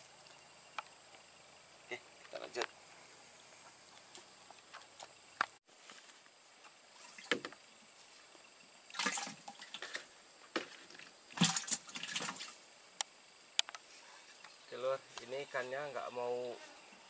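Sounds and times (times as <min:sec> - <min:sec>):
insects droning: 0:00.0 - 0:17.0
light water splashing: 0:08.9 - 0:10.0, 0:11.0 - 0:12.6.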